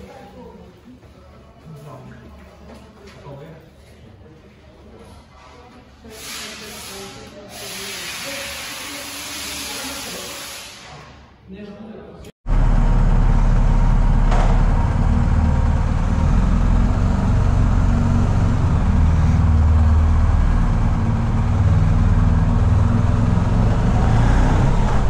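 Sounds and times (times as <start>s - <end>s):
motorcycle engine rumbling: 12.5s - 25.0s.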